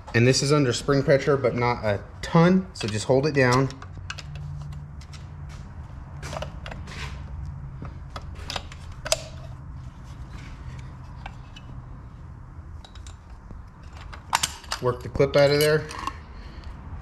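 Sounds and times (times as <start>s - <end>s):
screwdriver clicking and scraping metal: 8.1s - 11.8s, 12.8s - 16.2s.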